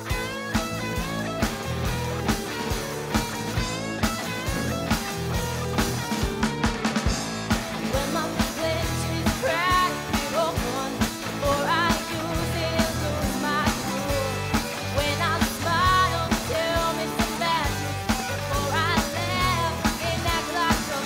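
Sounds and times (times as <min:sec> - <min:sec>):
live rock band playing: 0:00.0 - 0:21.0
person singing: 0:07.7 - 0:21.0.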